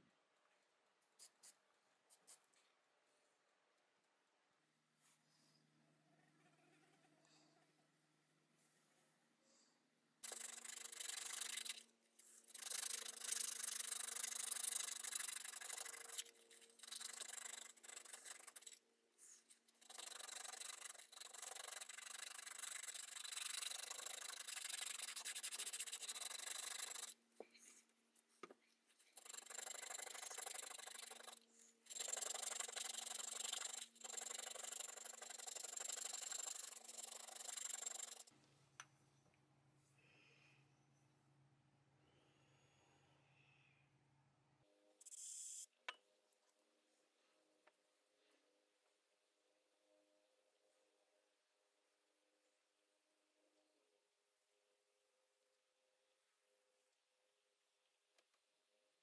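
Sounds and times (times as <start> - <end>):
sandpaper rubbing on metal: 12.4 - 18.8, 19.4 - 27.2, 29.1 - 38.2.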